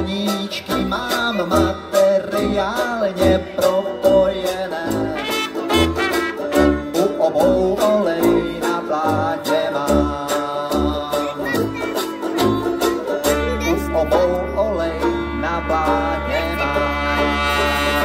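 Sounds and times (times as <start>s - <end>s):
strummed banjo: 0.0s - 18.0s
tuba bass notes: 0.0s - 18.0s
trumpet melody: 5.0s - 7.1s, 12.6s - 18.0s.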